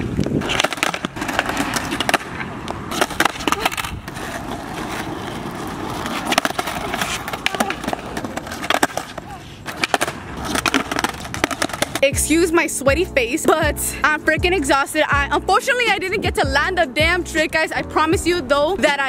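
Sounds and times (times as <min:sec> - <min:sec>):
skateboard clacking on ground: 0:00.0 - 0:12.2
skateboard wheels rolling on asphalt: 0:00.0 - 0:13.5.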